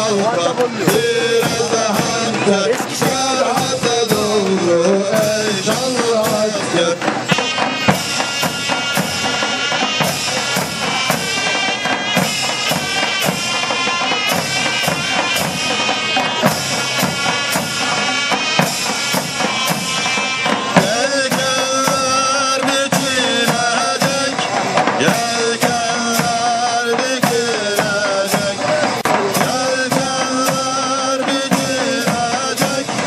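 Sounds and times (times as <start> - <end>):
men singing: 0.0 - 8.1, 20.5 - 33.0
drum strokes: 0.0 - 33.0.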